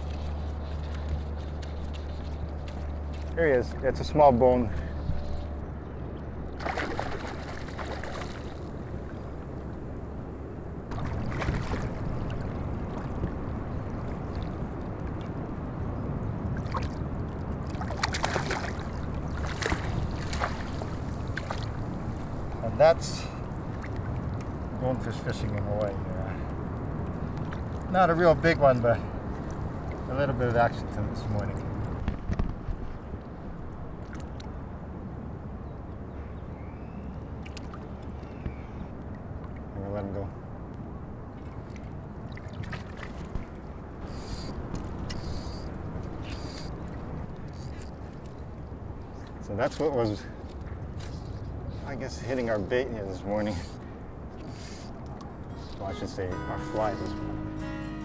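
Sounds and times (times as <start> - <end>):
low rumble of wind: 0.0 - 58.0
fish splashing in water: 6.5 - 9.2, 10.9 - 15.2, 16.5 - 22.6.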